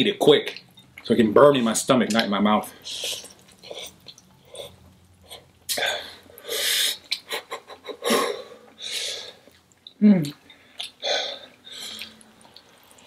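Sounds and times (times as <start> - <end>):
wet mouth clicks: 7.0 - 7.4, 9.5 - 11.0.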